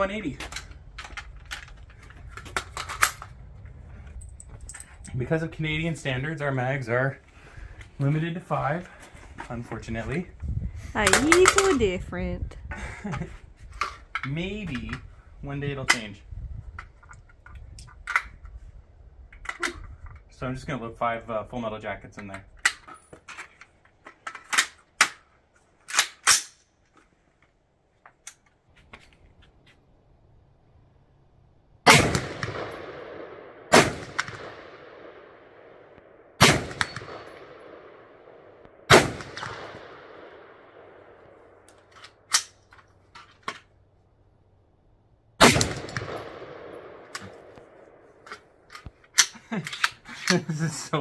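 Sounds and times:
rifle shots with echo: 31.8 - 41.6, 45.4 - 48.2.

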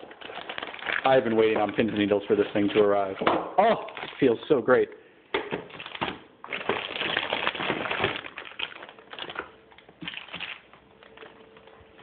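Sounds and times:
plastic bag crinkling: 0.0 - 4.5, 5.7 - 12.0.

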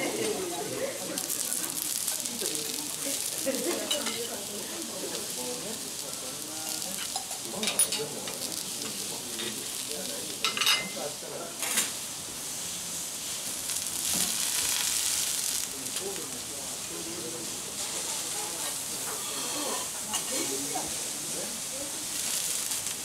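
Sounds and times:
vegetables sizzling on griddle: 0.0 - 23.0
spatula clinking on griddle: 3.6 - 4.3, 6.8 - 9.8, 10.4 - 11.0.

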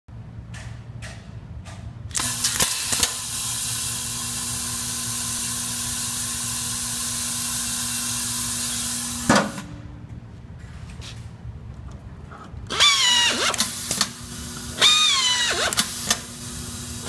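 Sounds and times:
pneumatic screwdriver hissing: 2.1 - 9.6, 12.7 - 17.0.

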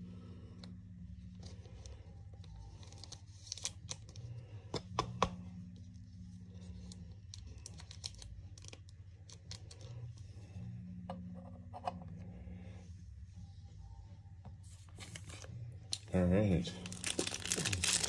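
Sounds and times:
low steady hum: 0.0 - 18.0
plastic sleeves clicking and crinkling: 7.3 - 9.9, 16.8 - 18.0.

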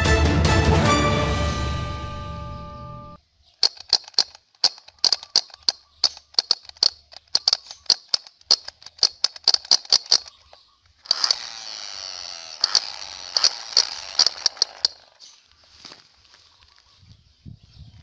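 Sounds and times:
toy gun hissing firing effect: 3.6 - 10.3, 11.1 - 11.8, 12.5 - 15.2
toy gun sharp cracks: 3.6 - 11.8, 12.5 - 15.2.

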